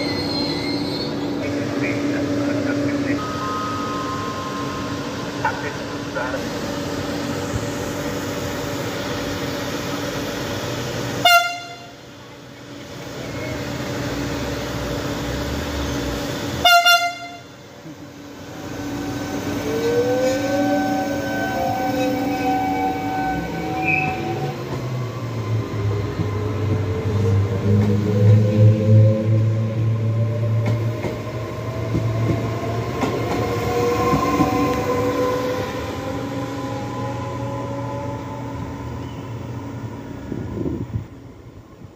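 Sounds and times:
electric train hum: 0.0s - 41.9s
train horn toot: 11.2s - 12.0s, 16.6s - 17.6s
train wheels clicking on rails: 23.8s - 29.0s, 29.7s - 35.6s.

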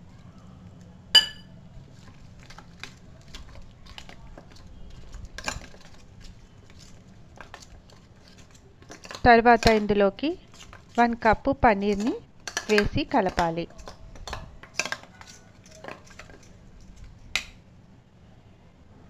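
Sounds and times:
steel-on-steel clink: 1.2s - 1.5s
spoon scraping a steel bowl: 4.9s - 17.4s.

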